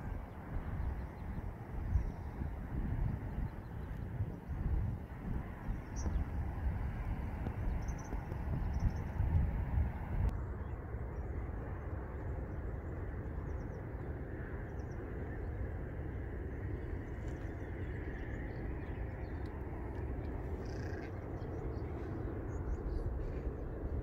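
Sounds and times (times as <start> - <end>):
wind rumble on microphone: 0.0 - 24.0.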